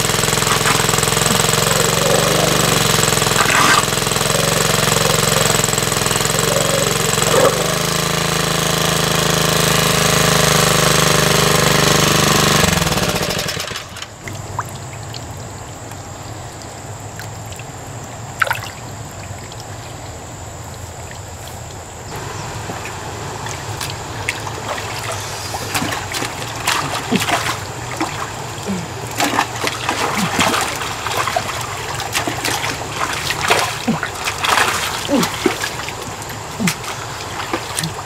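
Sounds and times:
hands splashing in water: 0:00.0 - 0:05.6, 0:22.7 - 0:38.0
muddy water sloshing: 0:00.0 - 0:16.4, 0:17.0 - 0:38.0
water pump engine hum: 0:00.0 - 0:38.0.

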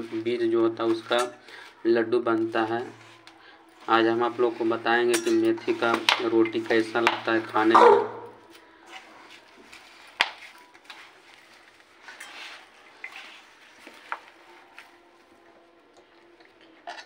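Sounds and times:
hands kneading dough: 0:08.4 - 0:15.8.

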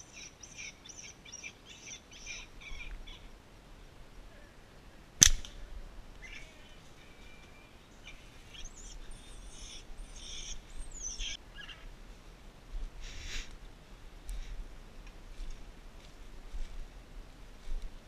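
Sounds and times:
birds chirping: 0:00.0 - 0:04.0, 0:06.1 - 0:11.9
slingshot snap: 0:05.2 - 0:05.6.

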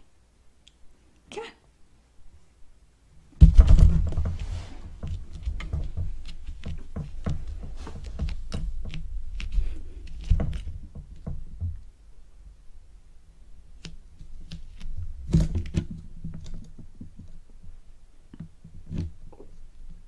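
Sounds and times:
loud thump: 0:03.4 - 0:04.6
cat fur rustling on microphone: 0:03.7 - 0:10.7.

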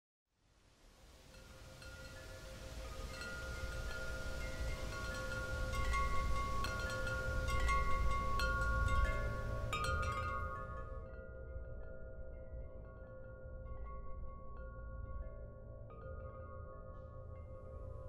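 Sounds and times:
tubular wind chime ringing: 0:01.3 - 0:18.0.

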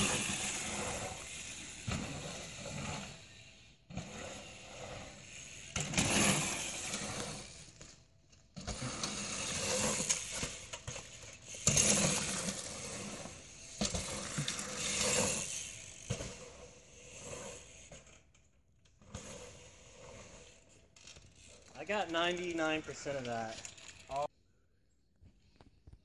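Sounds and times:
bike landing jumps: 0:00.0 - 0:18.1
bike tyres rolling on dirt: 0:00.0 - 0:24.3.

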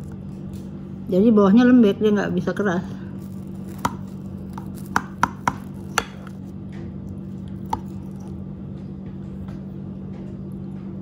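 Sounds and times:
pudding squishing: 0:03.1 - 0:08.4.

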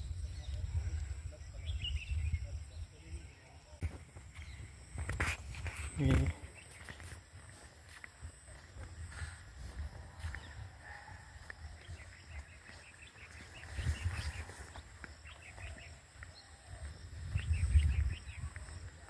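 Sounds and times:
small birds chirping: 0:00.0 - 0:19.0
low microphone rumbles: 0:16.8 - 0:19.0.

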